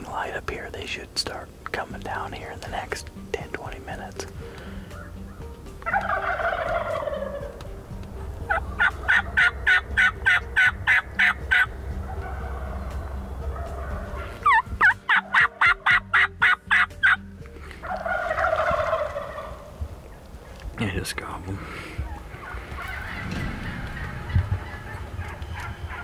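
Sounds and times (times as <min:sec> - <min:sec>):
turkeys gobbling: 0:03.6 - 0:20.7, 0:21.5 - 0:26.0
sharp quick turkey calls: 0:04.9 - 0:07.7, 0:08.5 - 0:17.2, 0:17.8 - 0:19.8
low steady rumble: 0:22.0 - 0:26.0.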